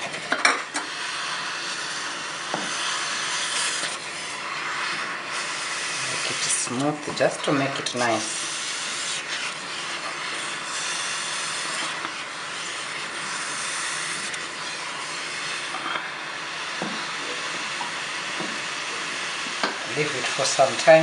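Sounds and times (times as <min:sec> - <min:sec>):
porridge hissing in a pot: 0:00.0 - 0:21.0
wooden spoon scraping: 0:02.5 - 0:16.1.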